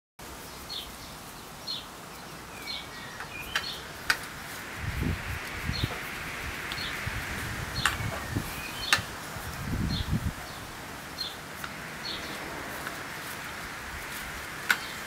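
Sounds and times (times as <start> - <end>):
bird chirping: 0.4 - 4.3, 5.6 - 7.1, 7.7 - 9.1, 9.8 - 13.6, 14.7 - 15.0.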